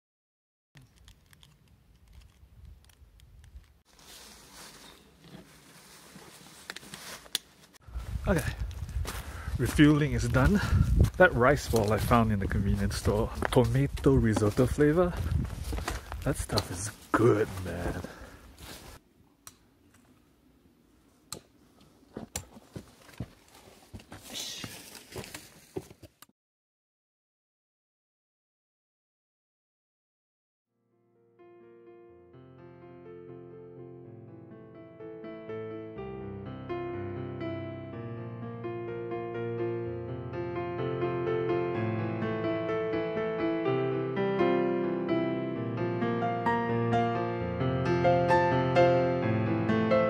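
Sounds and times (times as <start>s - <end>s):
footsteps on rocky trail: 4.0s - 19.0s, 22.1s - 26.2s.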